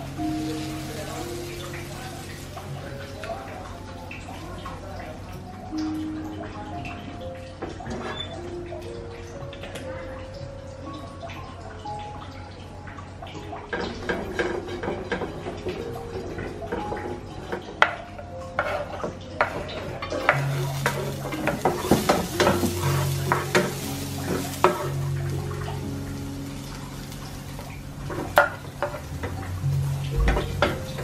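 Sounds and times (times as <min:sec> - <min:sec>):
onion sizzling in hot oil: 0:00.0 - 0:06.8, 0:13.4 - 0:31.0
wooden spatula scraping pan: 0:18.6 - 0:25.0.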